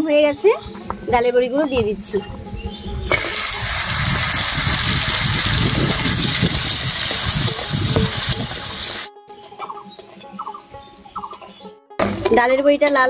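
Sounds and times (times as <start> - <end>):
dumplings sizzling in hot oil: 3.1 - 9.1.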